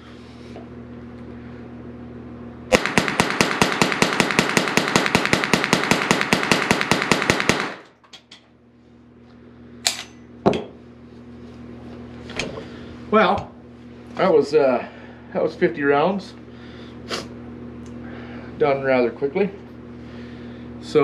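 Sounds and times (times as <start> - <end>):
rapid rifle shots: 2.7 - 7.9.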